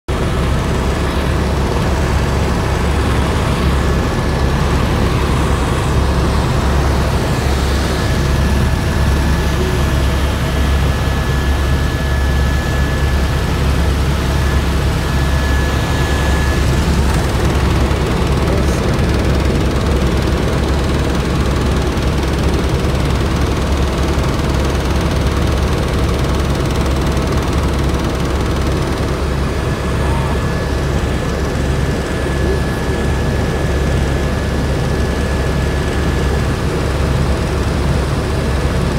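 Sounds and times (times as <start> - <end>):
high whine: 0.1 - 22.1
helicopter rotor and engine drone: 0.1 - 38.9.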